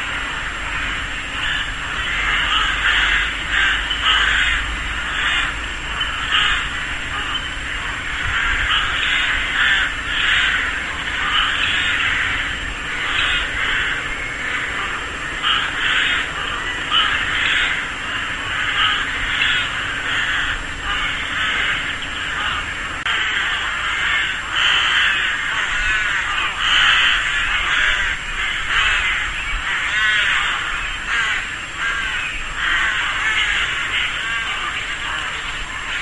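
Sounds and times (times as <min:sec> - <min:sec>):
rooks cawing: 0:00.0 - 0:36.0.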